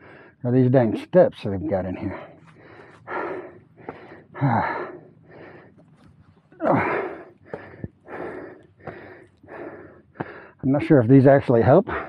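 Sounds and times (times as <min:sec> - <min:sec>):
man breathing hard: 0:00.0 - 0:00.4, 0:02.0 - 0:10.6
man groaning: 0:06.6 - 0:07.0.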